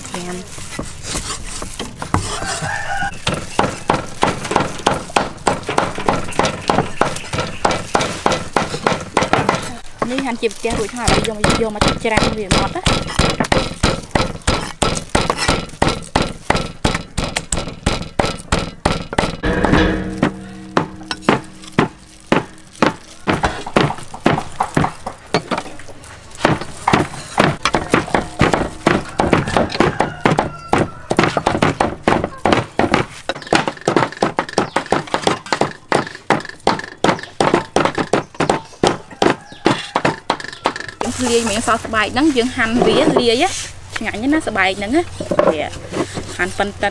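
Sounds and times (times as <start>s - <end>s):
cleaver chopping on wooden block: 3.1s - 10.2s, 11.1s - 25.6s, 26.4s - 40.8s.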